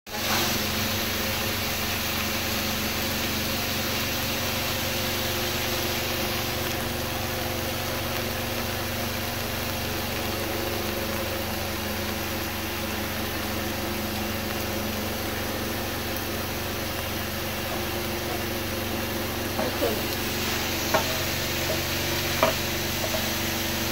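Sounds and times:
steady mechanical hum: 0:00.1 - 0:23.9
even hiss: 0:08.1 - 0:23.9.

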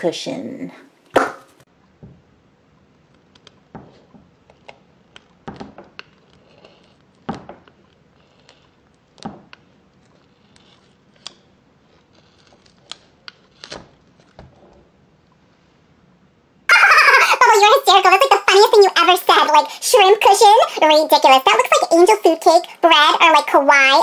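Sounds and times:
scissors snipping foam: 0:04.4 - 0:14.4.

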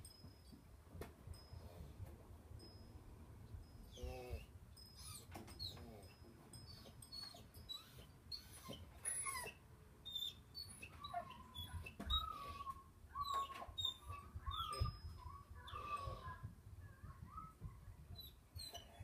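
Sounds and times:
animal high chirps: 0:06.7 - 0:16.4
animal squeaky calls: 0:06.8 - 0:16.4, 0:17.3 - 0:19.0.

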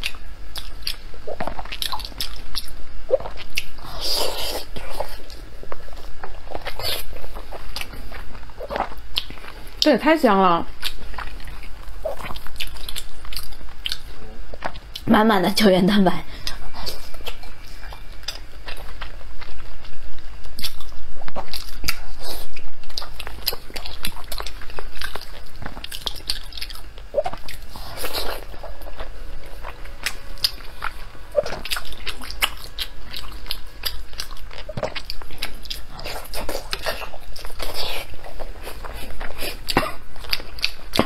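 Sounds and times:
wet chewing mouth sounds: 0:00.0 - 0:10.0, 0:10.7 - 0:15.1, 0:16.3 - 0:41.0.

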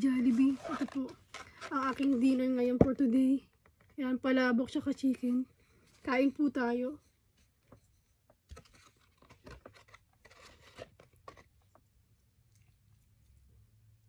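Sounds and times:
plastic fork scraping noodles: 0:00.1 - 0:02.4, 0:09.5 - 0:11.6.

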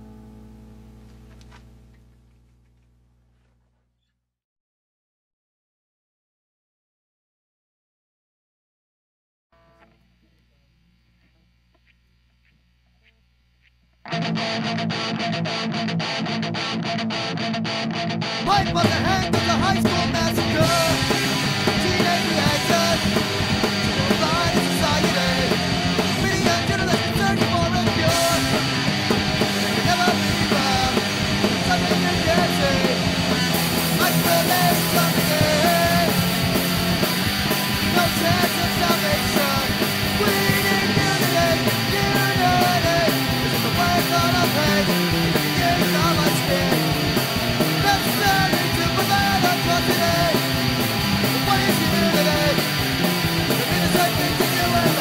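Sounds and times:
bass guitar runs: 0:00.0 - 0:03.8, 0:11.0 - 0:55.0
ska-punk band instrumental: 0:14.0 - 0:55.0.

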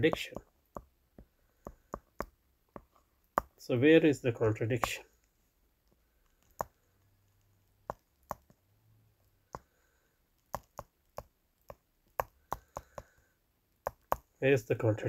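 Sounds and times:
stylus tapping on touchscreen: 0:00.0 - 0:03.6, 0:04.7 - 0:05.0, 0:06.4 - 0:06.8, 0:07.8 - 0:08.6, 0:09.5 - 0:09.7, 0:10.5 - 0:13.2, 0:13.8 - 0:14.3.

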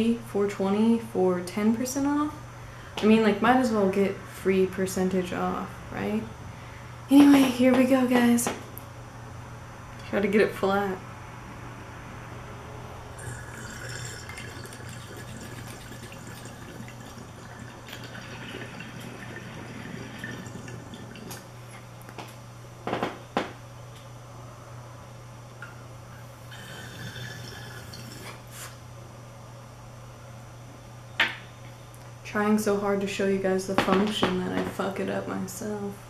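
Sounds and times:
bong water bubbling: 0:13.2 - 0:21.6, 0:26.4 - 0:28.6.

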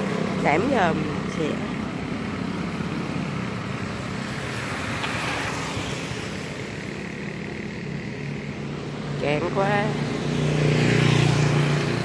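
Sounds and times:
vehicle engine hum: 0:00.0 - 0:12.0.

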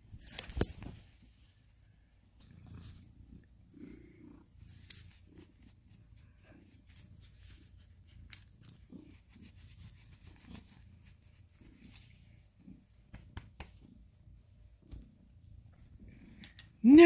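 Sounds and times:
cat purring: 0:01.3 - 0:16.8
hand stroking fur: 0:04.6 - 0:15.2.

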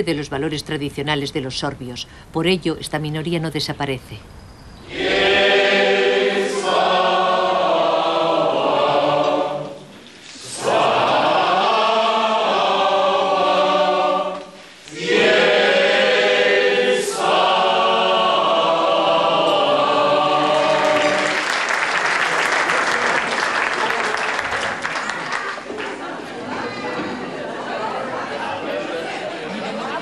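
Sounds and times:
choir singing: 0:04.9 - 0:22.0.

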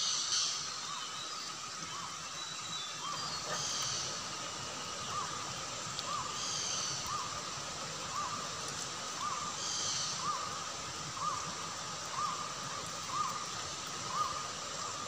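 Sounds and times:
forest and stream hiss: 0:00.0 - 0:15.0
bird calling: 0:03.0 - 0:04.2, 0:12.1 - 0:14.9.

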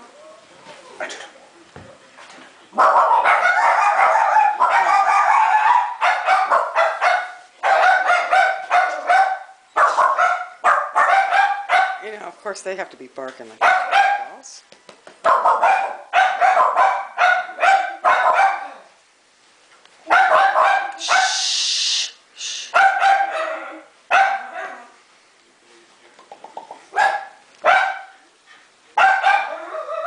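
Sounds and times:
dogs barking: 0:02.7 - 0:12.1, 0:13.6 - 0:14.5, 0:15.2 - 0:18.9, 0:20.0 - 0:21.5, 0:22.7 - 0:24.9, 0:26.9 - 0:28.2, 0:29.0 - 0:30.0
hiss: 0:20.9 - 0:22.8.

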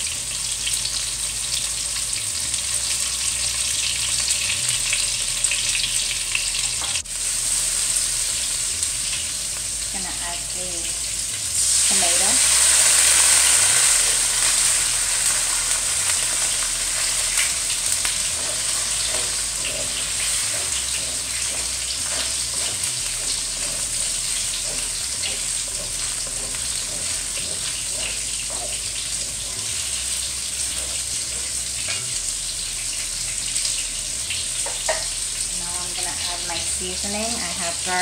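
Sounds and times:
oil sizzling in a pan: 0:00.0 - 0:38.0
wooden spoon stirring: 0:18.3 - 0:29.7.

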